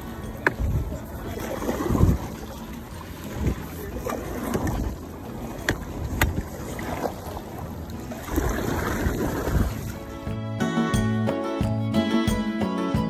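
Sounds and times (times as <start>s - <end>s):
wind buffeting microphone: 0.0s - 10.4s
water splashing around a hull: 0.0s - 10.9s.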